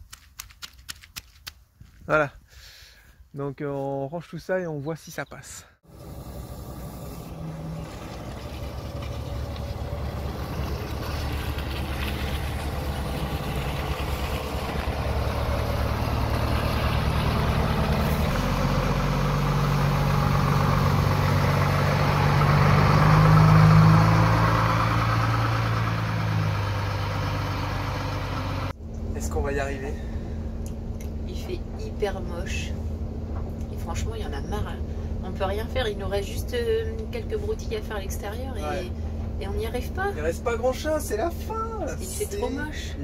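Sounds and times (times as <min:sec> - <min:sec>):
diesel bus engine under load: 0:05.8 - 0:43.0.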